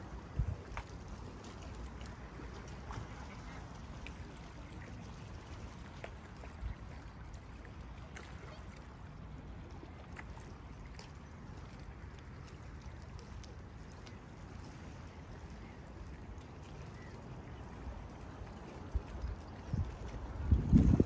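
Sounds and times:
lake water lapping: 0.0 - 21.0
small splashes: 0.0 - 21.0.

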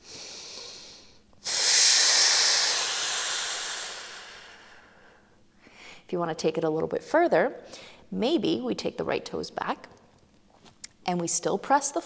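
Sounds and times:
forceful exhale through lips: 0.0 - 5.0
woman breathing in: 0.0 - 6.1, 7.6 - 8.1.

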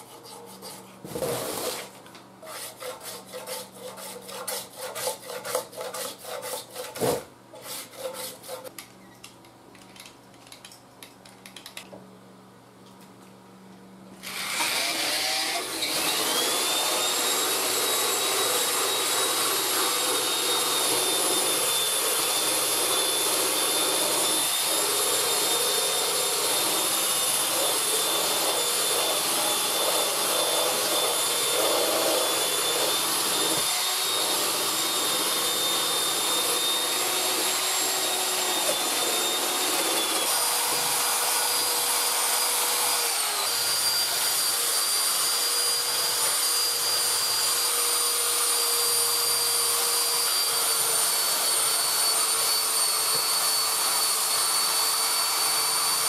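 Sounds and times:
wire brush grinding paint: 0.0 - 7.0, 7.6 - 8.7
electric drill whining: 14.2 - 56.0.

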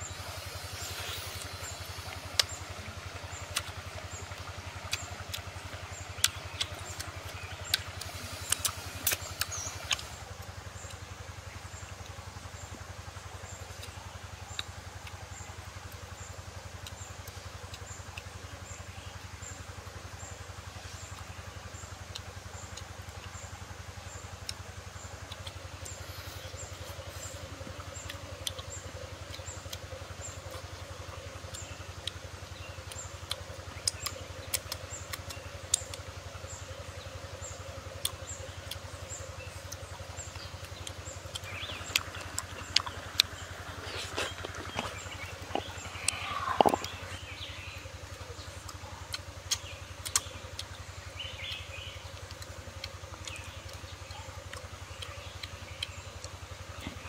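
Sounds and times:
steady low hum: 0.0 - 57.0
sharp clicks: 37.4 - 47.5, 48.1 - 50.8.

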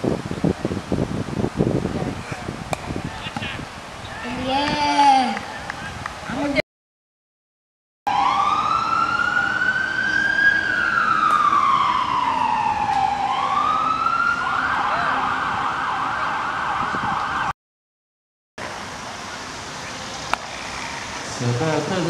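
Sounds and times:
ambulance siren: 8.1 - 17.5.

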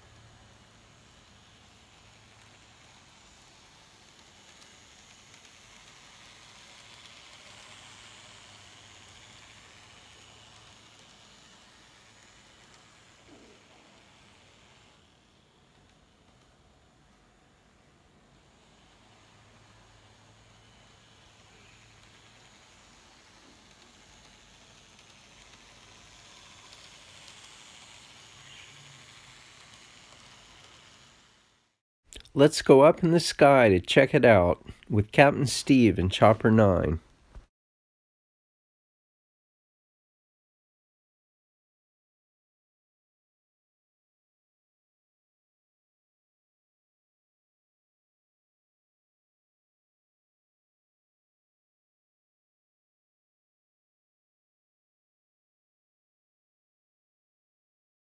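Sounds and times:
model trams whirring: 0.0 - 36.8.

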